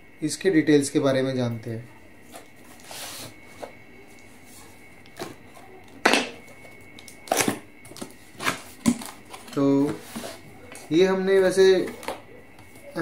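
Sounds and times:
cardboard scraping and rustling: 2.2s - 3.8s, 7.4s - 10.9s.

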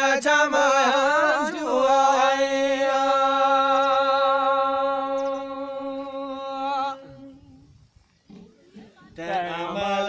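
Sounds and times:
person singing a long note: 0.0s - 7.6s.

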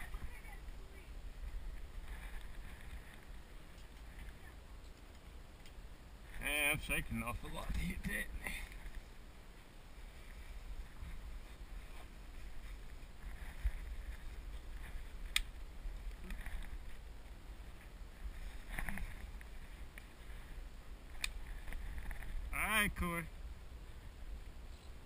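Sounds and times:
faint sharp clicks: 3.7s - 5.8s.

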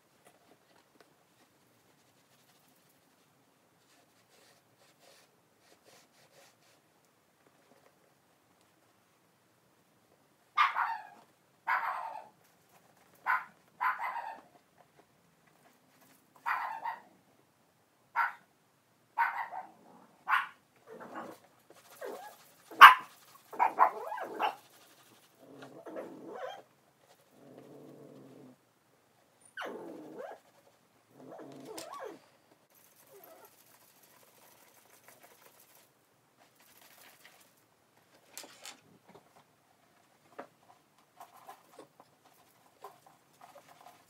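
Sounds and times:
dog barking: 10.6s - 12.3s, 13.2s - 14.4s, 16.4s - 17.1s, 18.2s - 18.5s, 19.2s - 20.6s, 22.7s - 24.6s.

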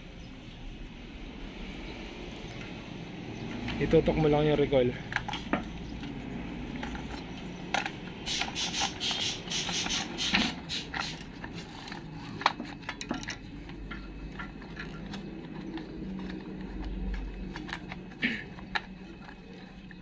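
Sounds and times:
plastic clicking and scraping: 9.7s - 20.0s.

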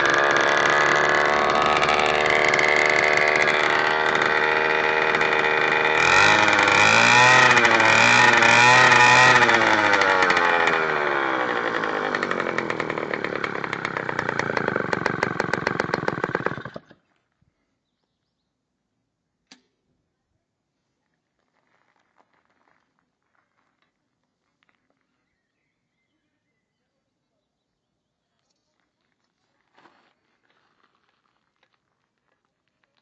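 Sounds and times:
two-stroke bicycle engine running: 0.0s - 17.0s.

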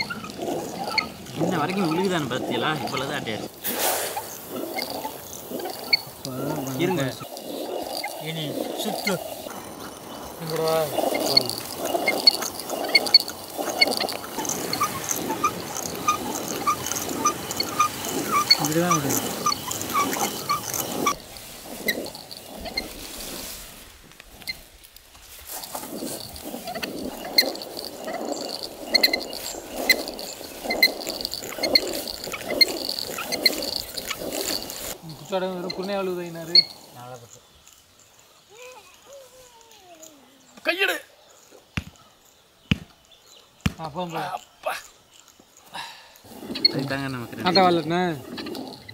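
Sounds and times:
sharp ticks and clicks: 0.0s - 23.4s, 24.1s - 38.0s
stone quern grinding: 0.0s - 37.6s, 46.2s - 48.9s.

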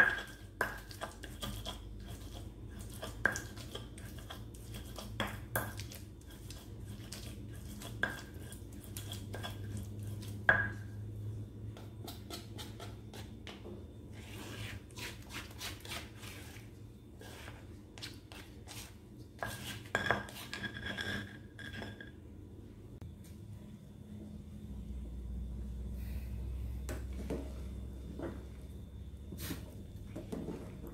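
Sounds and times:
stone pestle grinding in mortar: 0.0s - 10.8s, 17.2s - 22.0s.

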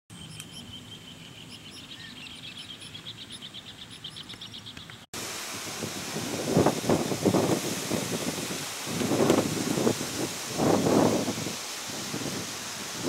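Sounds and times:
birds chirping: 0.1s - 5.1s
wind buffeting microphone: 5.2s - 13.0s.

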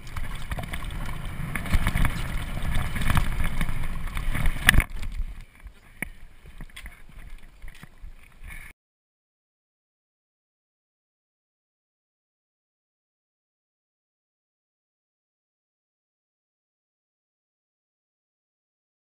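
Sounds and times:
bike rattling over bumps: 0.0s - 8.2s
bike clicks: 0.0s - 8.7s
wind noise: 0.0s - 8.7s.

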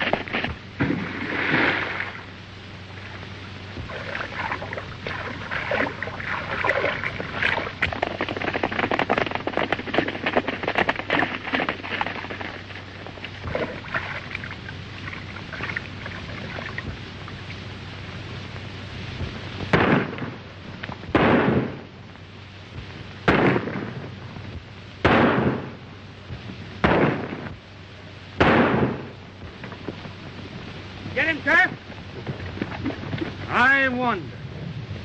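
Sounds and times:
horses galloping: 0.0s - 2.3s, 2.9s - 22.0s, 28.5s - 35.0s
steady low hum: 0.0s - 35.0s.

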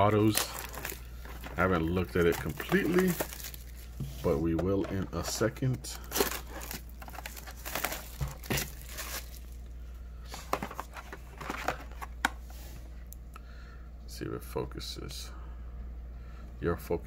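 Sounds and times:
packaging crinkling: 0.0s - 9.6s, 10.3s - 12.2s.

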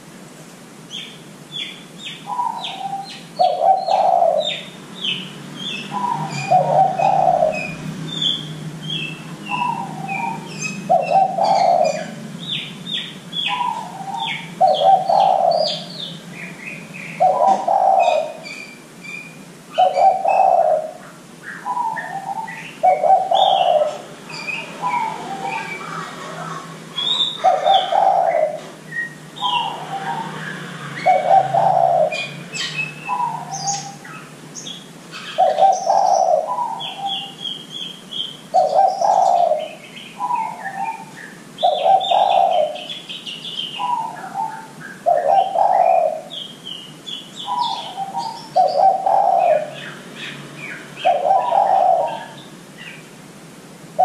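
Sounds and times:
small birds chirping: 0.8s - 53.2s
dove cooing: 2.2s - 4.7s, 5.7s - 12.6s, 13.4s - 18.6s, 19.8s - 34.3s, 35.2s - 37.6s, 38.5s - 43.1s, 43.8s - 46.4s, 47.4s - 49.9s, 51.0s - 52.4s.

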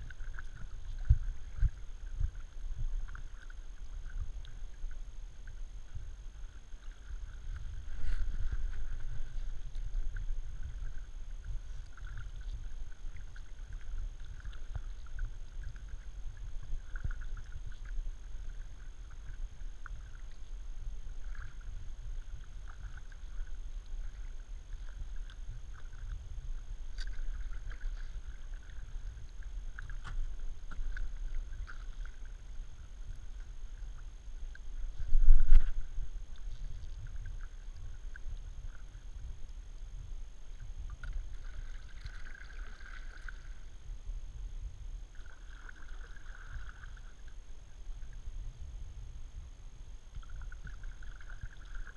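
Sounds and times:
paddle splashing water: 0.0s - 39.4s, 40.5s - 43.7s, 45.1s - 48.2s, 50.1s - 51.9s
low rumble: 0.0s - 51.9s.

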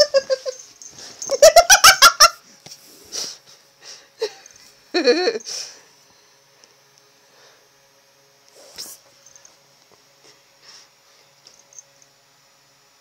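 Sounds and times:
person giggling: 0.0s - 0.6s, 1.2s - 2.4s, 4.2s - 5.8s.

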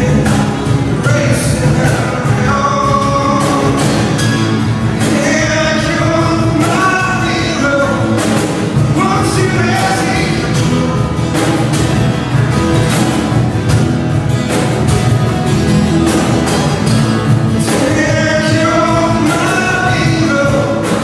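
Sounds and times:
man singing: 0.0s - 11.9s, 17.2s - 21.0s
strummed acoustic guitars: 0.0s - 21.0s.

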